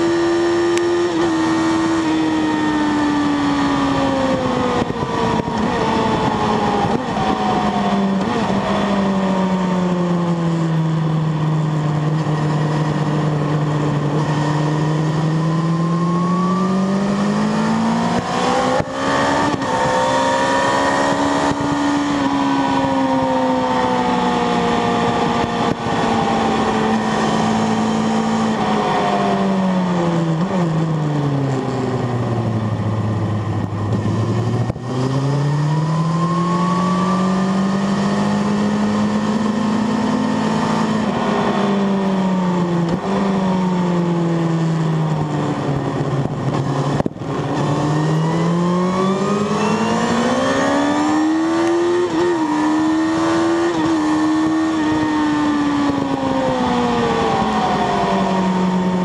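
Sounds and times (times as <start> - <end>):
motorcycle engine at speed: 0.0 - 59.0
wind rush: 1.0 - 10.9, 39.2 - 59.0.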